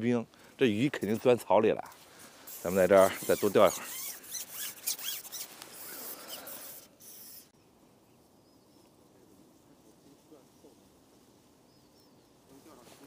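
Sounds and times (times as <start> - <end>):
rustling through dry reeds: 0.4 - 7.3, 8.2 - 13.0.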